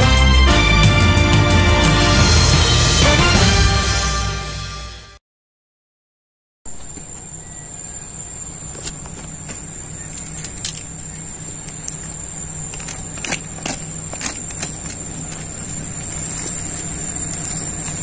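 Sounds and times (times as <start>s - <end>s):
high whine: 0.0s - 5.2s, 6.7s - 18.0s
vehicle engine idling: 7.4s - 18.0s.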